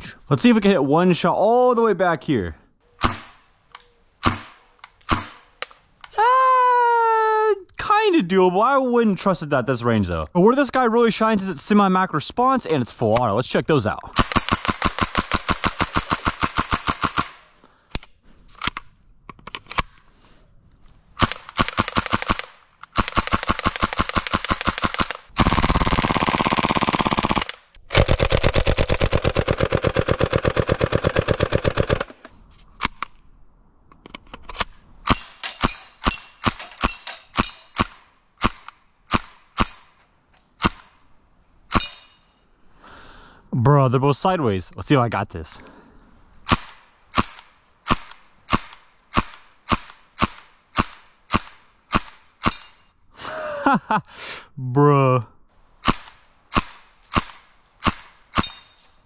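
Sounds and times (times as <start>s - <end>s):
airsoft gun single shots: 3.0s - 3.4s, 4.2s - 5.8s, 46.4s - 52.6s
airsoft gun full-auto bursts: 14.2s - 17.6s, 21.2s - 32.0s, 46.4s - 52.6s, 55.8s - 58.6s.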